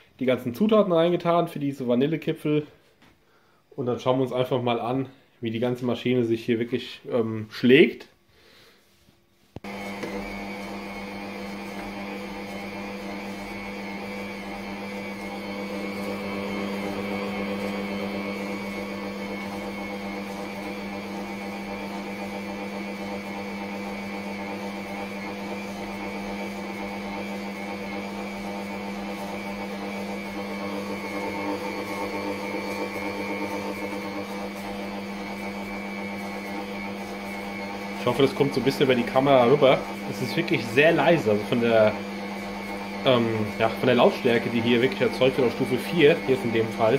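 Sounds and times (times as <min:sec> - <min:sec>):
stand mixer motor humming: 0:09.6 - 0:46.9.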